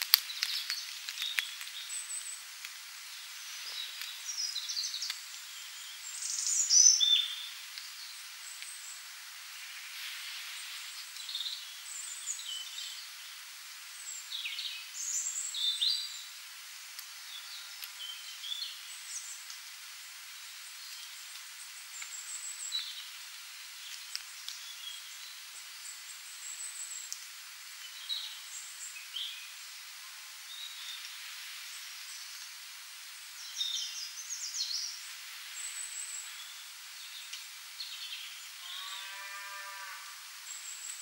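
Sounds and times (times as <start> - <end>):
steady hiss: 0.0 - 41.0.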